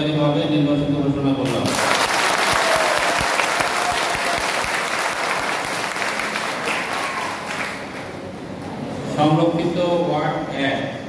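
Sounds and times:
crowd applauding: 0:01.6 - 0:08.3.

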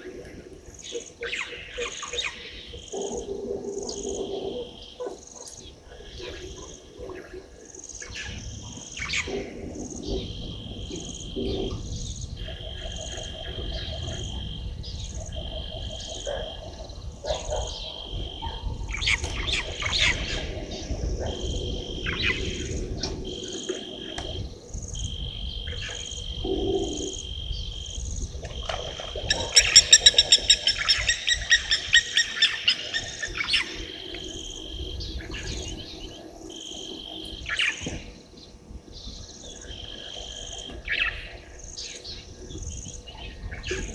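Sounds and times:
frogs and insects calling: 0:00.0 - 0:43.9
rattling animal calls: 0:28.4 - 0:38.1.

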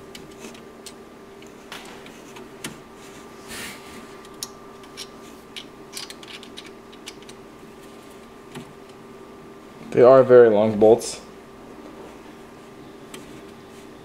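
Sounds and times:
faint steady hum: 0:00.0 - 0:14.0
clicks and scrapes of parts: 0:04.2 - 0:08.7.

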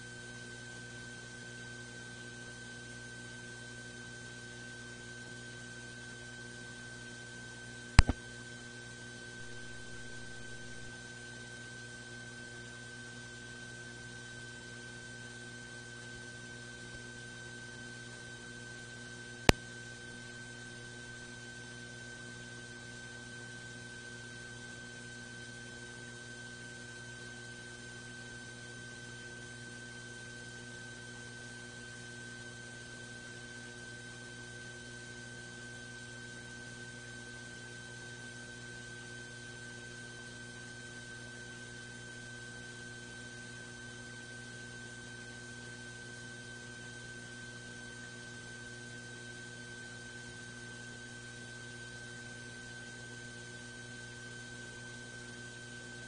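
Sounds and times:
electrical hum with whine: 0:00.0 - 0:56.0
sharp click: 0:08.0 - 0:08.2.

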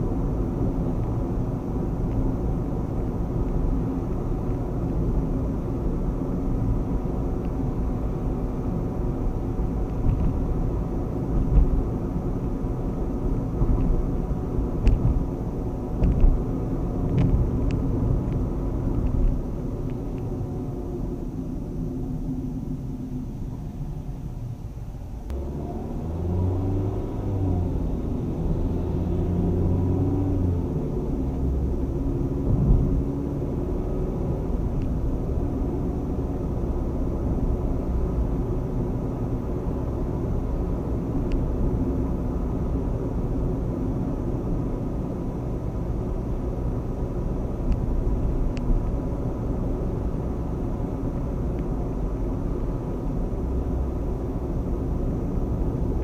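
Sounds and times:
tyre road noise: 0:00.0 - 0:56.0
car engine accelerating: 0:25.2 - 0:56.0.

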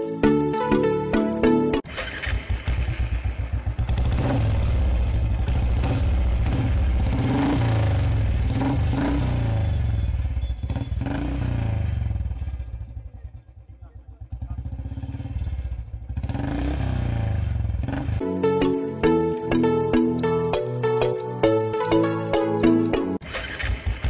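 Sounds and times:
motorcycle engine running: 0:01.8 - 0:18.2.

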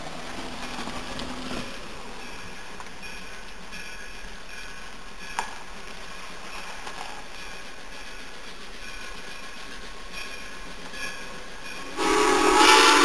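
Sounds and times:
distant train rumble: 0:00.0 - 0:13.0.

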